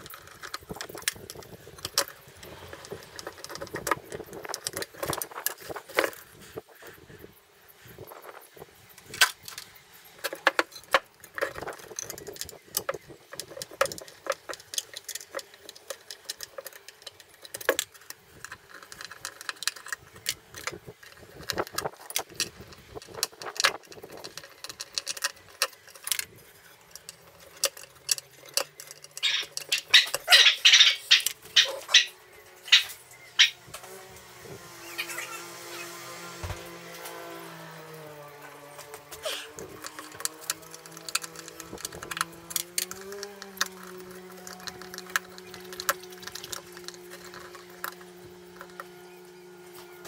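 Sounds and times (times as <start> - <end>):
metal parts and tools clinking: 9.0 - 33.6, 38.5 - 50.0.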